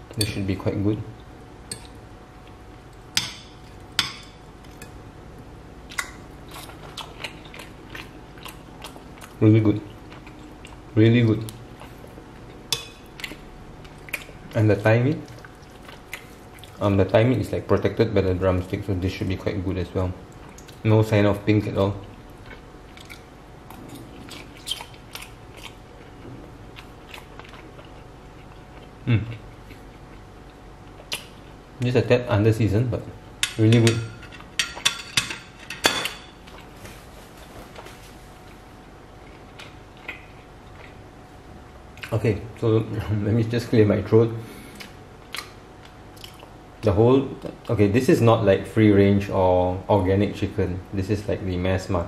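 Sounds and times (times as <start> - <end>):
person chewing food: 4.6 - 16.8, 22.0 - 31.6, 36.0 - 41.2, 44.5 - 46.6.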